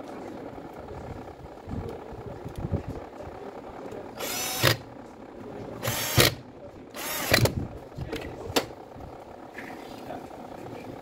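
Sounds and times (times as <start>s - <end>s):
power screwdriver bursts: 4.2s - 4.8s, 5.8s - 6.4s, 7.0s - 7.5s.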